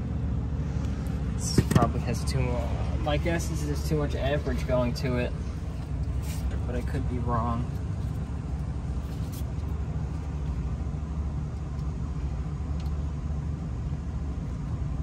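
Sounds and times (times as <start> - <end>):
air conditioning unit humming: 0.0 - 15.0.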